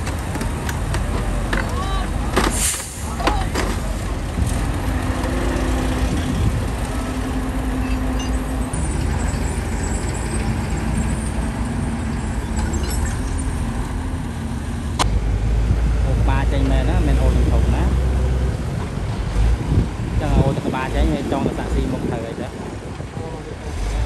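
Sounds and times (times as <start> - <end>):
diesel truck engines droning: 0.0 - 24.0
faint engine tone: 6.0 - 14.7.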